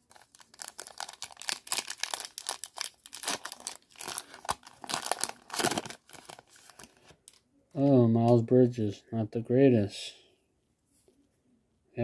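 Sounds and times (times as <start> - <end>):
foil wrapper tearing and crinkling: 0.0 - 7.0.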